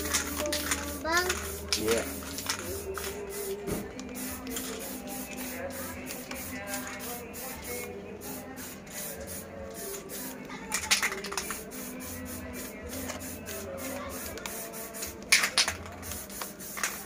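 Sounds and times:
spray paint can hissing: 0:00.0 - 0:17.0.

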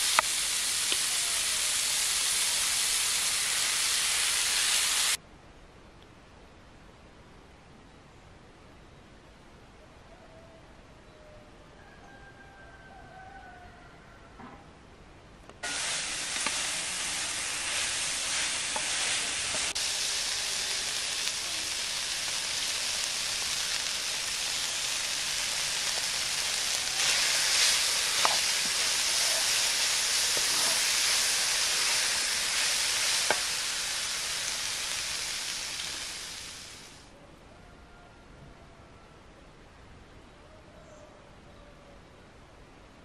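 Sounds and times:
minced meat sizzling in a pot: 0:00.0 - 0:05.2, 0:15.6 - 0:37.1.

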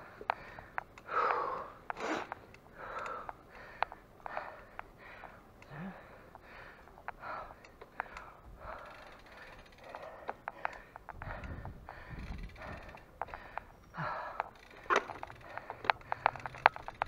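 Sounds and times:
person panting heavily: 0:00.0 - 0:17.0
faint sharp clicks: 0:00.2 - 0:11.6, 0:12.3 - 0:13.7.

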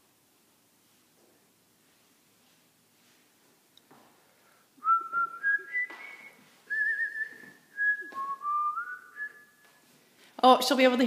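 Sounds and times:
person whistling a tune: 0:04.8 - 0:09.8.

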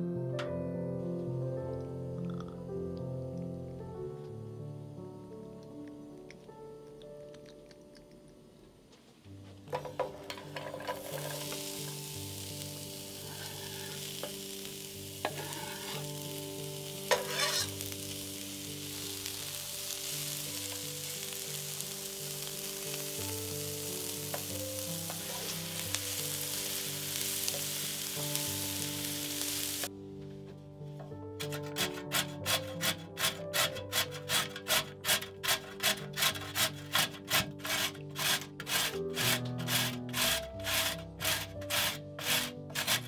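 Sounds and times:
onion sizzling in oil: 0:09.7 - 0:29.9, 0:36.2 - 0:43.0.

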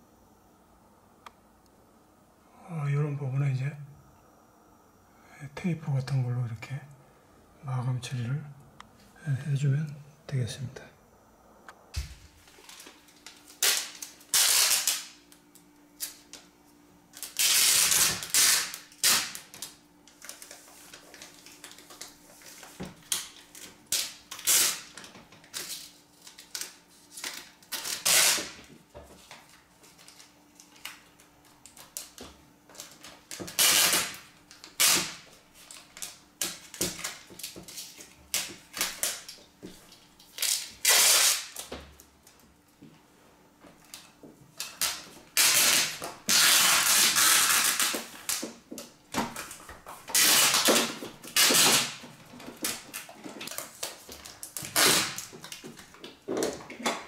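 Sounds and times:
packing tape ripping off roll: 0:12.0 - 0:15.3, 0:16.0 - 0:16.4, 0:17.1 - 0:42.4, 0:43.8 - 0:57.0.

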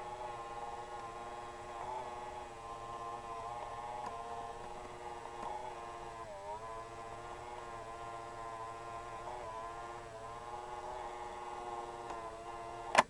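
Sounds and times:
electrical hum with buzz: 0:00.0 - 0:13.0.

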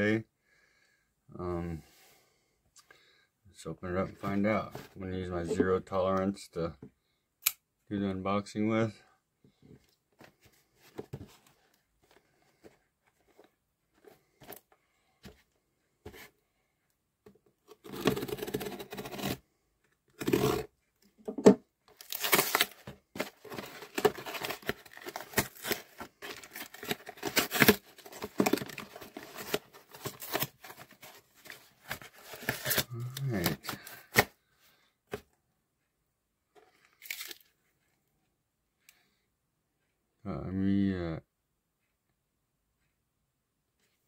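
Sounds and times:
cardboard box tearing and crinkling: 0:17.8 - 0:19.4, 0:20.2 - 0:20.7, 0:22.0 - 0:34.2.

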